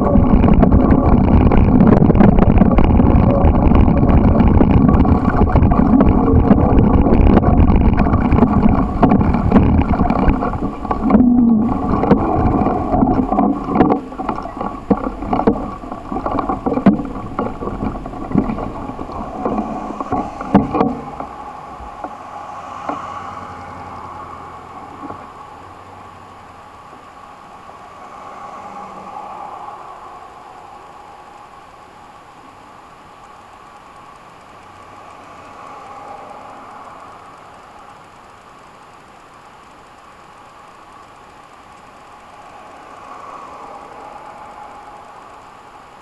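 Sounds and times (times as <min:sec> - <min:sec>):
bicycle rattling over bumps: 0:00.0 - 0:22.1
wind noise on microphone: 0:00.0 - 0:26.2.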